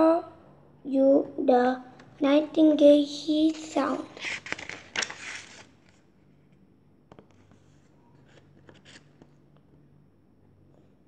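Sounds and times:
paper page turning: 0:03.5 - 0:06.1, 0:07.3 - 0:09.4.

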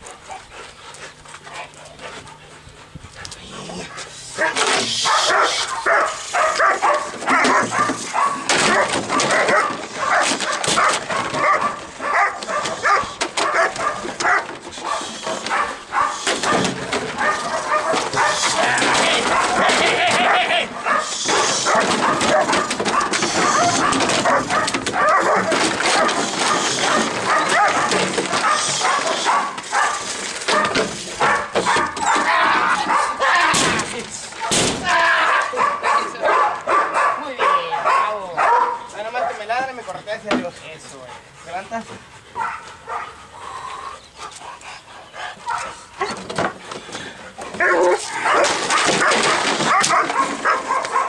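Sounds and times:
dog barking rapidly: 0:04.0 - 0:33.4, 0:34.4 - 0:39.7, 0:42.4 - 0:43.2, 0:47.6 - 0:51.0
plastic bottles clattering on concrete: 0:21.5 - 0:35.1, 0:46.1 - 0:51.0.

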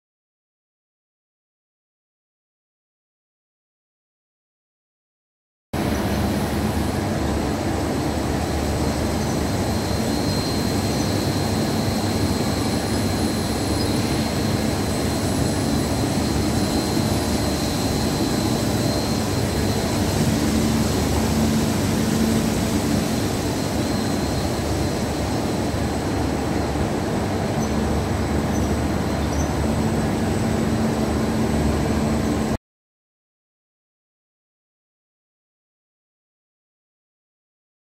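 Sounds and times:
machine and conveyor running: 0:05.8 - 0:32.6
thin high whine: 0:05.8 - 0:32.6.

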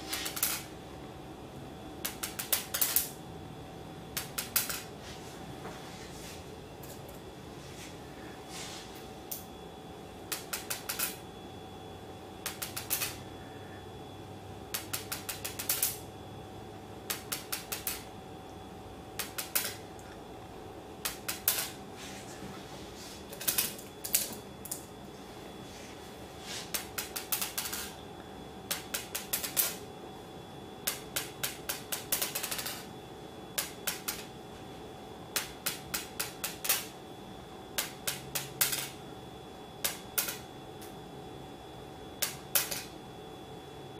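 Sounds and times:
faint steady hum: 0:00.0 - 0:43.9
magnet balls clicking on stone: 0:12.5 - 0:13.2, 0:14.8 - 0:16.0, 0:19.2 - 0:19.8, 0:30.9 - 0:32.9, 0:42.2 - 0:42.9.

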